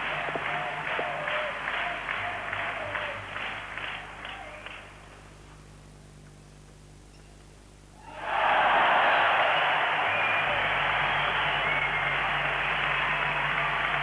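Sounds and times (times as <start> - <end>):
crowd clapping in unison: 0.0 - 5.2, 8.2 - 14.0
low steady hum: 0.0 - 14.0.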